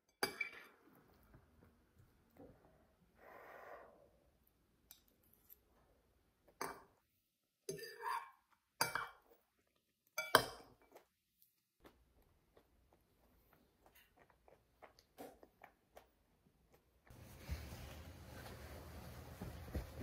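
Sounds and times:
soft breath-like hiss: 0:03.1 - 0:04.3.

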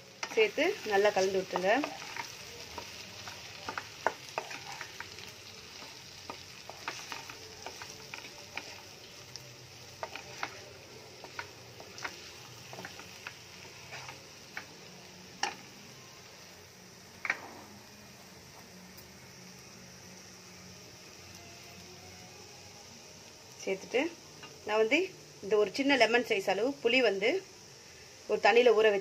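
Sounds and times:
food sizzling in a pan: 0:00.0 - 0:29.0
wooden spatula scraping a pan: 0:01.0 - 0:05.0, 0:10.0 - 0:14.7.

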